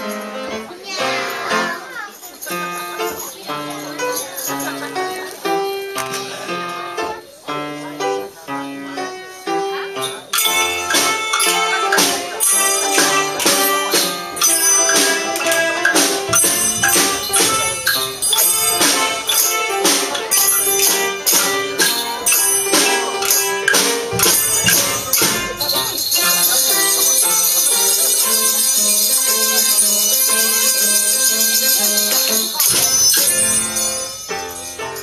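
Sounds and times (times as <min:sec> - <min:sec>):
percussion band playing: 0:00.0 - 0:07.1, 0:09.5 - 0:35.0
melody: 0:10.4 - 0:35.0.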